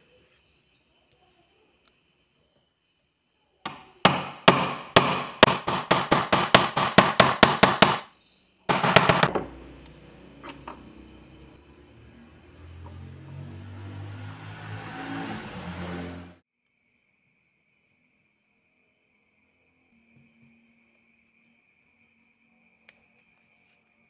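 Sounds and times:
sharp metal knocks: 0:03.7 - 0:08.0, 0:08.7 - 0:09.7.

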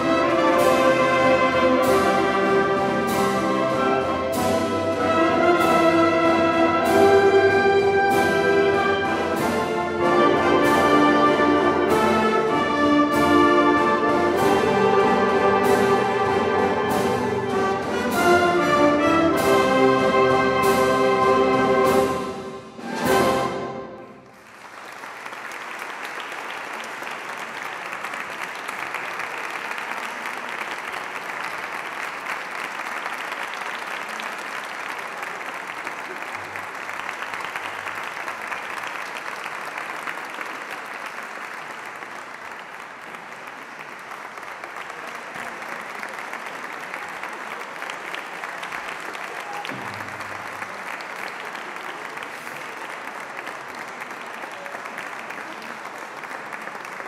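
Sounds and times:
audience applauding: 0:22.8 - 0:57.0.

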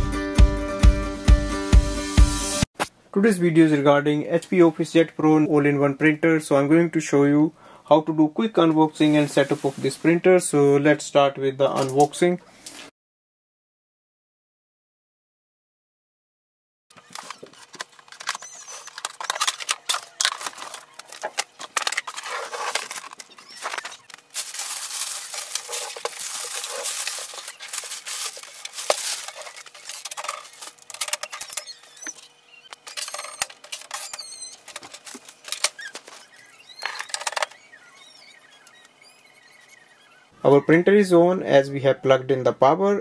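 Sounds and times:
cardboard and plastic rustling: 0:16.9 - 0:37.6
short squeaks: 0:16.9 - 0:40.5.

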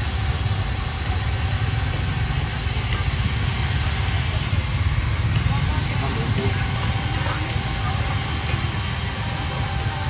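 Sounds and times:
engine running low rumble: 0:00.0 - 0:10.0
street noise: 0:00.0 - 0:10.0.

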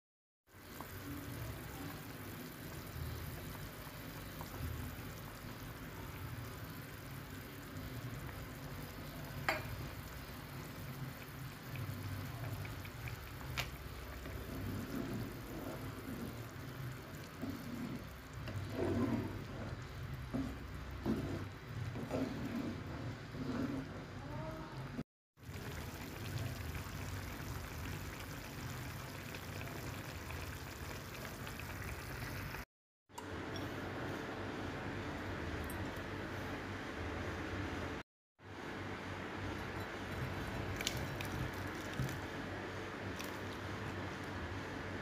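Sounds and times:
cooking hiss: 0:00.5 - 0:22.5.

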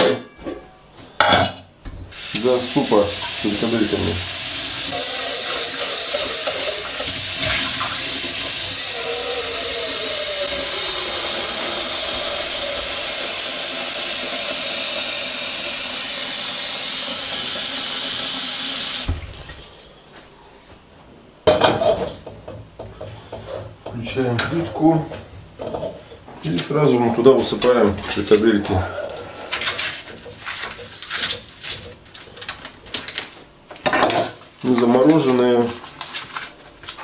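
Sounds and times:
pot clanking: 0:04.9 - 0:15.0.

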